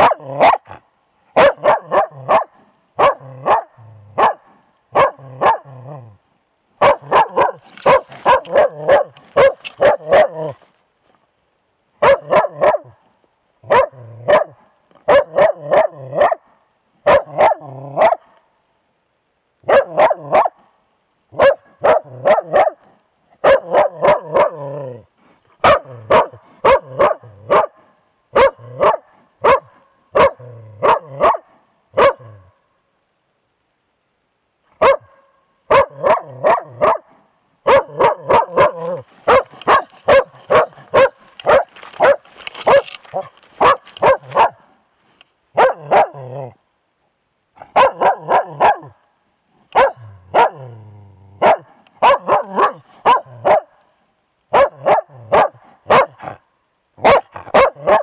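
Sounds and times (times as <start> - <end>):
dog barking: 0.0 - 5.8, 6.8 - 10.6, 12.0 - 13.0, 13.6 - 18.4, 19.6 - 20.7, 21.3 - 25.0, 25.6 - 32.5, 34.7 - 44.7, 45.5 - 46.5, 47.6 - 49.0, 49.7 - 50.8, 51.4 - 53.8, 54.5 - 56.4, 57.0 - 58.0.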